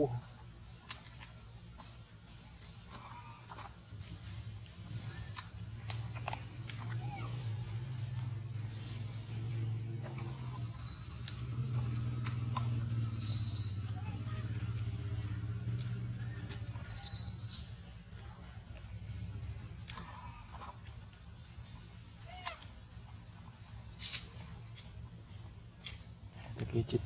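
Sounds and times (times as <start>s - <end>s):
short high chirps: 12.9s - 14.0s, 16.8s - 17.8s.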